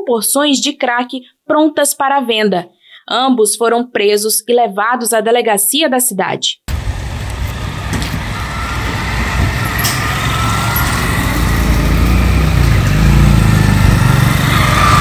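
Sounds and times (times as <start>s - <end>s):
small motorcycles riding past: 6.7s - 15.0s
vehicle engines running: 6.7s - 15.0s.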